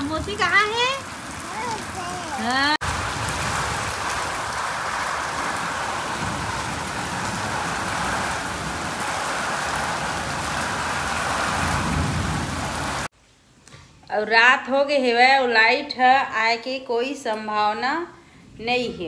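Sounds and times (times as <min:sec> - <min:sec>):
rain falling: 0:00.0 - 0:13.1.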